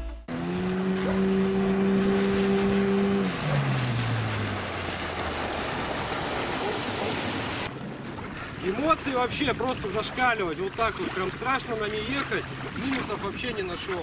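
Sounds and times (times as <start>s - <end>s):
outboard motor whine: 0.0s - 8.4s
wind: 0.0s - 14.0s
water spray rushing: 0.3s - 7.7s.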